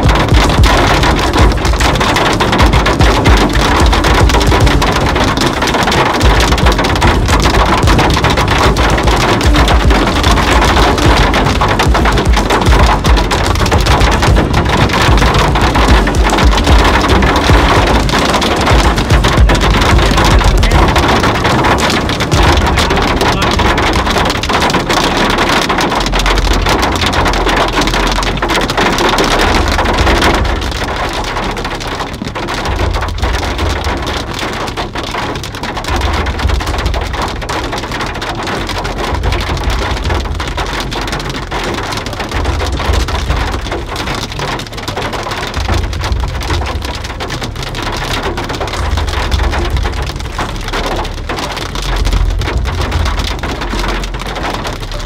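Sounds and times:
hail and rain on vehicle roof: 0.0s - 55.0s.

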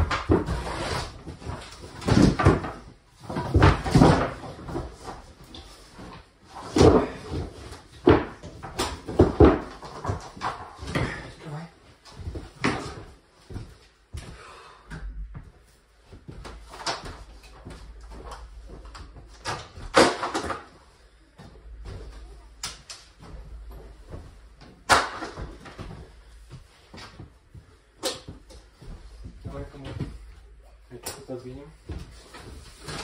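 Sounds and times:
vinyl planks clattering: 0.0s - 11.3s, 16.3s - 20.8s, 21.7s - 26.3s
footsteps: 0.0s - 20.0s, 20.6s - 33.0s.

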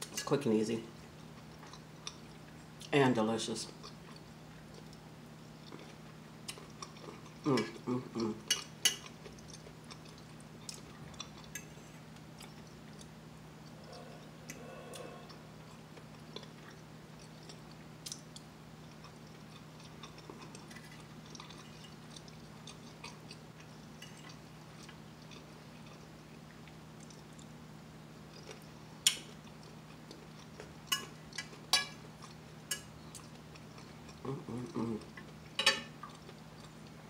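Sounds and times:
steady low hum: 0.0s - 37.0s
soft chewing: 0.9s - 3.0s, 3.7s - 37.0s.

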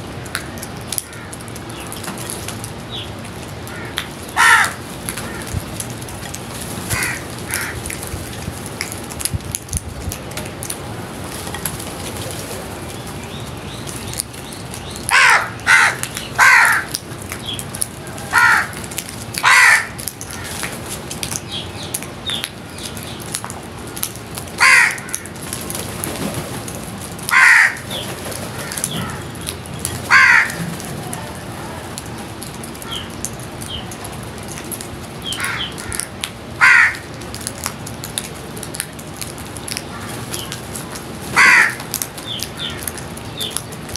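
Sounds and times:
crows cawing: 0.4s - 1.6s, 3.7s - 5.6s, 6.9s - 8.0s, 15.1s - 17.0s, 18.2s - 20.7s, 24.6s - 25.4s, 27.3s - 29.5s, 30.1s - 30.7s, 32.8s - 33.2s, 35.3s - 37.1s, 39.9s - 40.2s, 41.4s - 42.0s, 42.6s - 43.0s.

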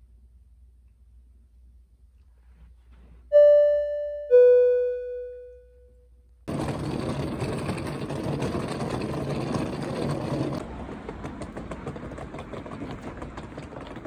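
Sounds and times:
passing traffic: 6.5s - 14.0s.

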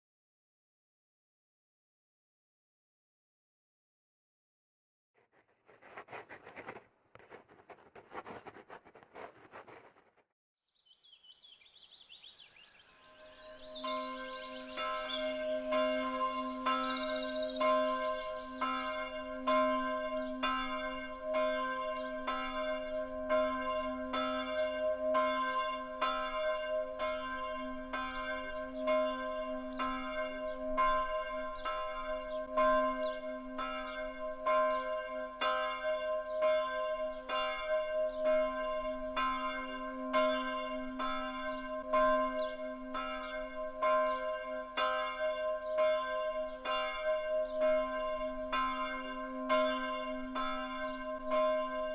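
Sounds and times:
bells ringing: 13.1s - 51.9s.

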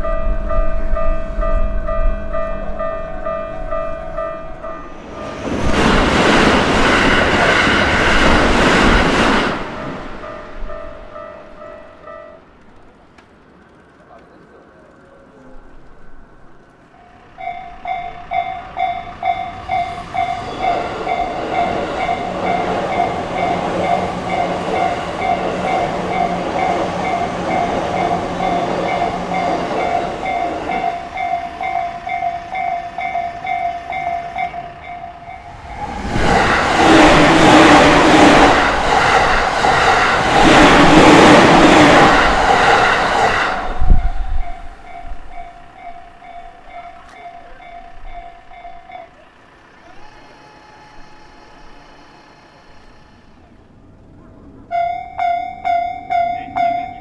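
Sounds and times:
level crossing bell ringing: 0.0s - 5.0s, 17.0s - 35.6s, 44.3s - 49.4s, 54.7s - 57.0s
train wheels clattering over rails: 0.0s - 15.0s, 16.8s - 49.8s.

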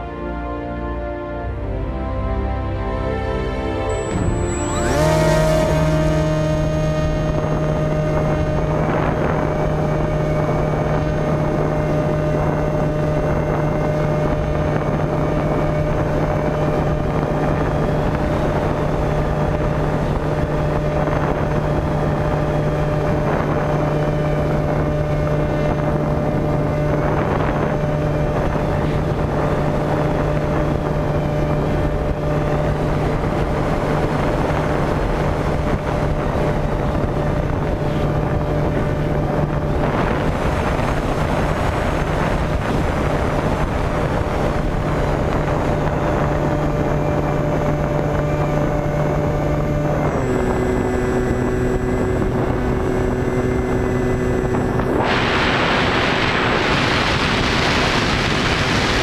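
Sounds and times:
electric motor and propeller humming: 3.7s - 59.0s
wind rushing over microphone: 3.9s - 59.0s.

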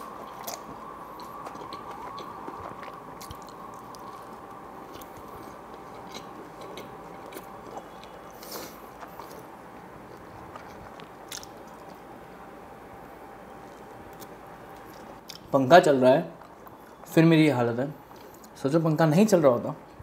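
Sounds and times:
close chewing with mouth clicks: 0.0s - 12.1s, 13.6s - 15.5s
ceiling fan running: 0.0s - 20.0s.

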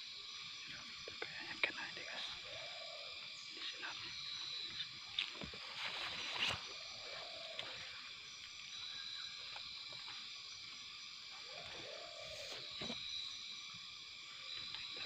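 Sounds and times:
undergrowth brushing against body: 5.2s - 6.7s.

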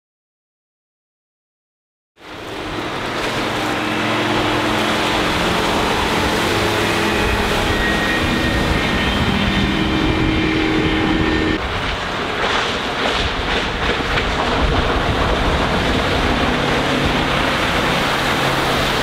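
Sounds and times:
boat engine drone: 2.2s - 19.0s.

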